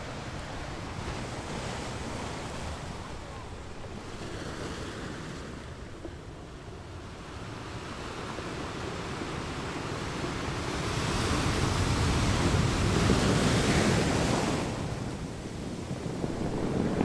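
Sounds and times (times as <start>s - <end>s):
ocean waves breaking: 0.0s - 17.0s
wind buffeting microphone: 10.6s - 17.0s.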